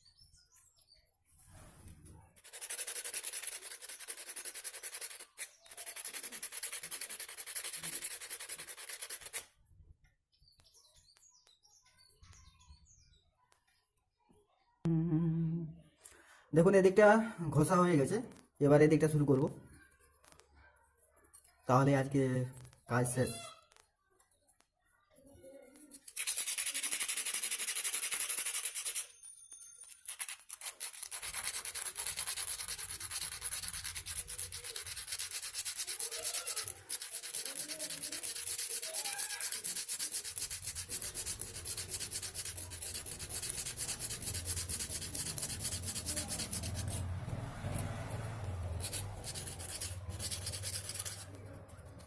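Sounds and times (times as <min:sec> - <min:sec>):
sandpaper scratching on metal: 0:02.4 - 0:09.5, 0:25.9 - 0:29.1, 0:30.0 - 0:47.9, 0:48.7 - 0:52.0.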